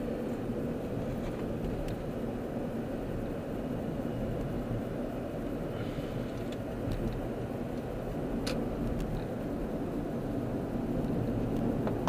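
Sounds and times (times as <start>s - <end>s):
car engine and tyre rumble: 0.0s - 12.0s
road hiss: 0.0s - 12.0s.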